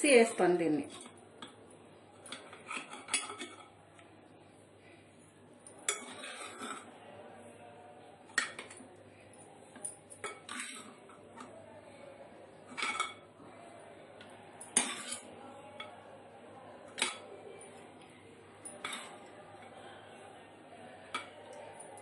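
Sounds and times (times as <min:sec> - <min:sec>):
metal spoon clinking on pot: 0:02.2 - 0:03.8, 0:05.7 - 0:06.9, 0:08.3 - 0:08.8, 0:09.8 - 0:11.5, 0:12.7 - 0:13.3, 0:14.6 - 0:16.0, 0:16.9 - 0:17.3, 0:18.6 - 0:19.7.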